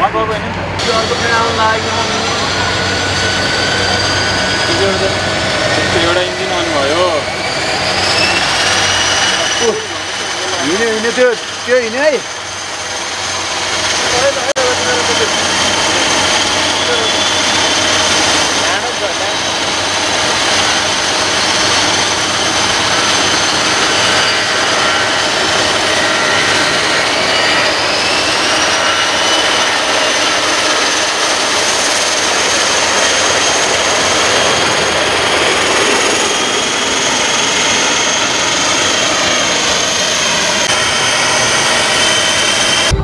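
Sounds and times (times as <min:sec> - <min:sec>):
high engine whine: 0:00.0 - 0:43.0
jet engines at takeoff thrust: 0:00.0 - 0:43.0.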